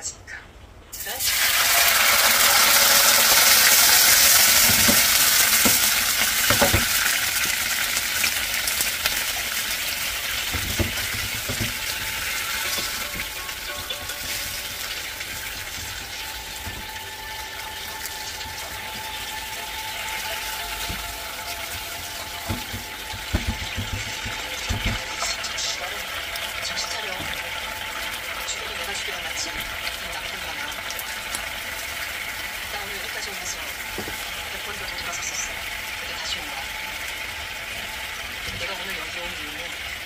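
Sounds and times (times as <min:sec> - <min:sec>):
sauce sizzling and bubbling in pan: 0:00.9 - 0:40.0
spatula stirring and tapping pan: 0:03.4 - 0:28.2, 0:33.8 - 0:35.5.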